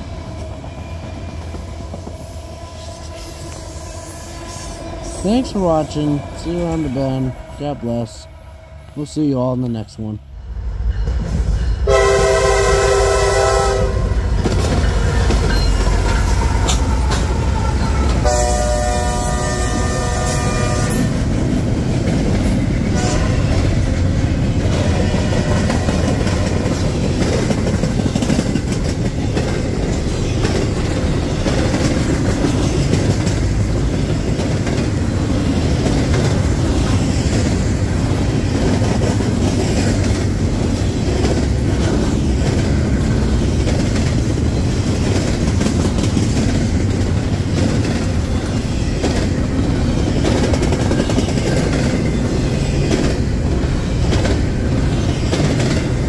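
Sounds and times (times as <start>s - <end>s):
train rumbling on rails: 0.0s - 56.0s
train horn blasts: 11.8s - 14.3s, 17.9s - 21.3s, 22.9s - 23.6s.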